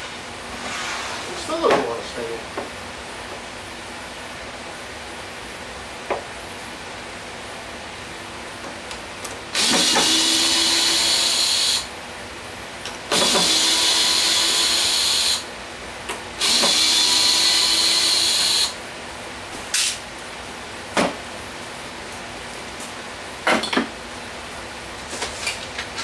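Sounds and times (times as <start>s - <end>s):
cordless drill driving into wood: 9.6s - 11.9s, 13.1s - 15.4s, 16.4s - 18.8s.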